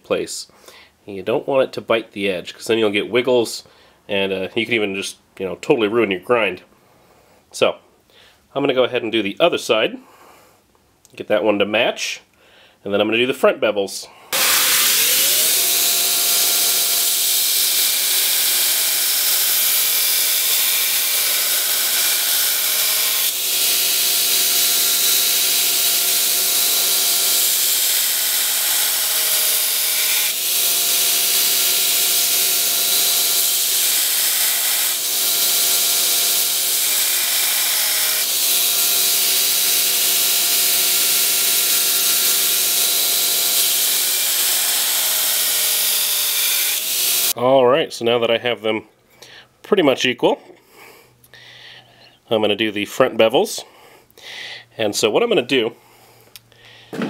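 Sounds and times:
belt grinder grinding hiss: 14.3s - 47.4s.

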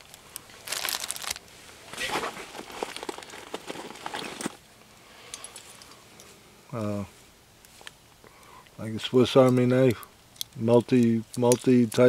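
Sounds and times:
emergency blanket crinkling: 0.0s - 4.6s.

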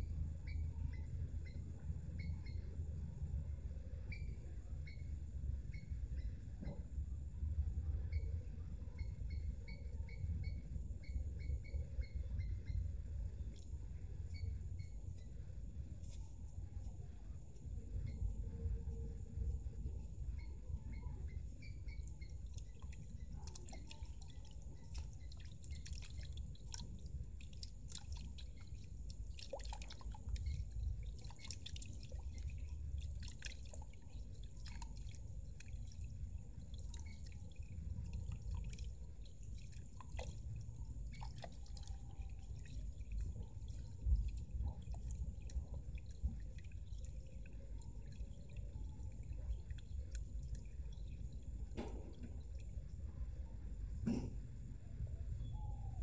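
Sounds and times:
low steady rumble: 0.0s - 56.0s.

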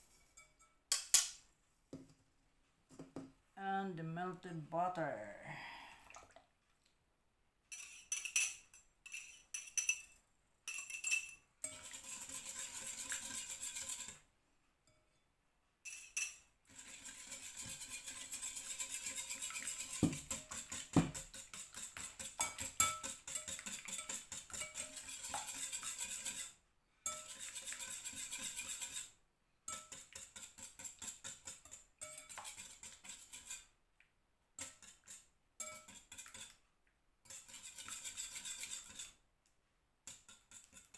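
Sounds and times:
whisk clinking against glass bowl: 0.2s - 0.8s, 7.7s - 14.2s, 15.9s - 29.1s, 29.7s - 33.6s, 34.6s - 36.5s, 37.3s - 39.1s.

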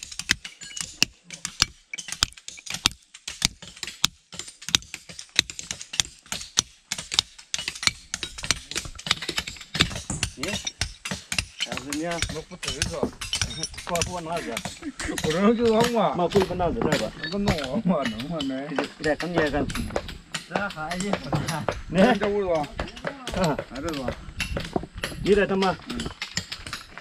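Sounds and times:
rapid clicking and knocking: 0.0s - 27.0s
people talking: 10.3s - 10.7s, 11.7s - 19.9s, 20.5s - 24.2s, 25.2s - 26.1s.

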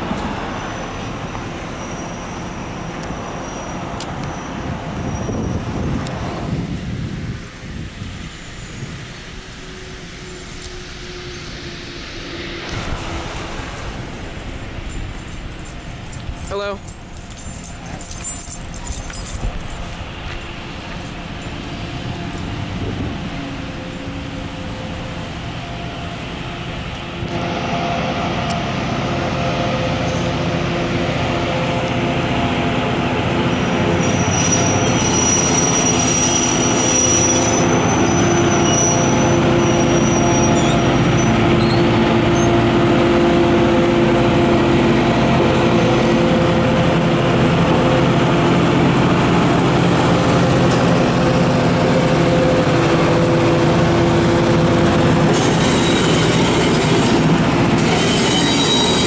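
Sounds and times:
diesel railcar engine passing: 0.0s - 59.0s
thin high squeal: 34.0s - 41.8s, 55.4s - 57.2s, 57.8s - 59.0s.

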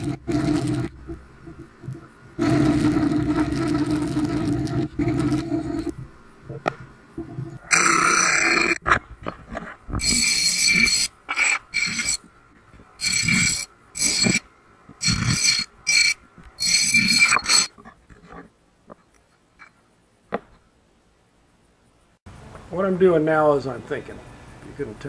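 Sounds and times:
disc sander grinding steel: 10.0s - 12.3s, 13.0s - 14.4s, 15.0s - 17.7s.

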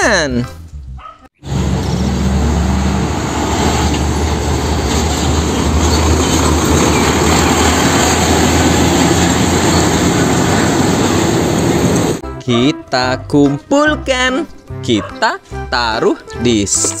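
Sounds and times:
road and tyre noise: 0.6s - 12.2s
diesel truck engine running: 1.4s - 12.2s.

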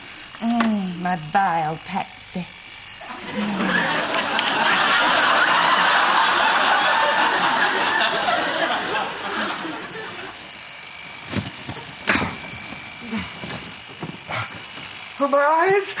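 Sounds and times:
studio audience laughing: 3.0s - 10.5s.

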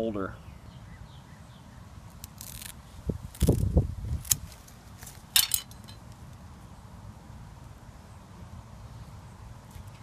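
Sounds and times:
scissors snipping webbing: 2.1s - 5.4s
handling noise: 4.2s - 6.2s.

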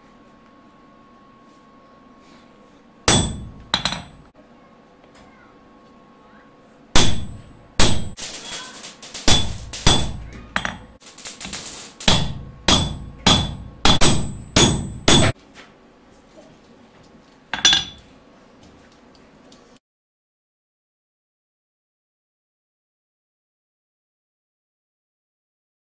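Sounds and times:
hammer ringing on anvil: 3.1s - 4.3s, 7.0s - 15.4s, 17.6s - 18.0s.

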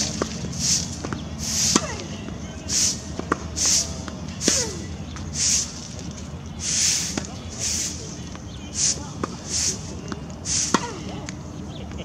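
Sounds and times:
tennis ball bouncing: 0.0s - 5.4s, 9.1s - 11.4s
racquets striking tennis ball: 0.0s - 11.4s
short hissing bursts: 0.5s - 1.8s, 2.7s - 5.8s, 6.6s - 8.1s, 8.7s - 10.9s.

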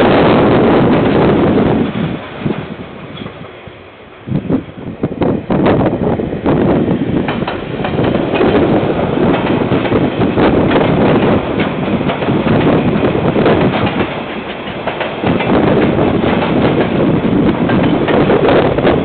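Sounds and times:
freight train rumbling past: 0.0s - 19.0s
wheels clattering over rail joints: 0.8s - 3.6s, 7.2s - 19.0s.

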